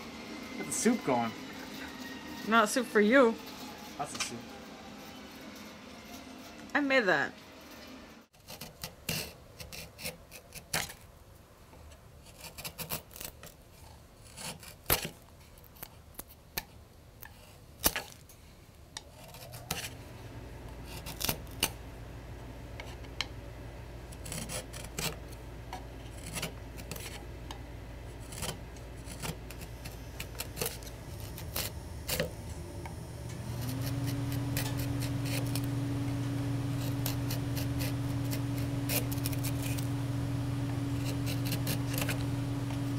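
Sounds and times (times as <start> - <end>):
low machine hum: 0.0 - 8.3, 19.3 - 42.9
carving tool cutting wood: 8.3 - 11.0, 12.2 - 13.6, 14.2 - 15.2, 19.0 - 20.0, 20.8 - 21.8, 24.1 - 25.4, 26.1 - 27.3, 28.1 - 32.4, 33.4 - 42.9.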